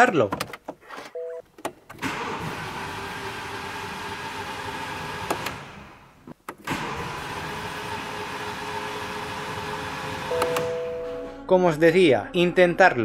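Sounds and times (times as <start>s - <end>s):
engine starter cranking: 6.5s - 8.0s.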